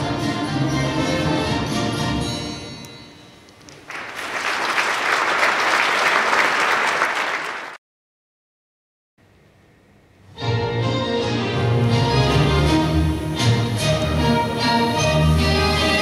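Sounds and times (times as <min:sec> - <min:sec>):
orchestral dance music: 0:00.0 - 0:03.2, 0:10.3 - 0:16.0
audience applauding: 0:03.7 - 0:07.8.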